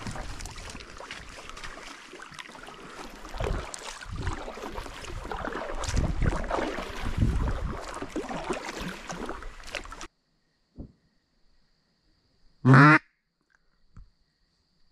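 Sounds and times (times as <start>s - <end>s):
wind buffeting microphone: 0.0s - 1.3s, 3.3s - 8.2s.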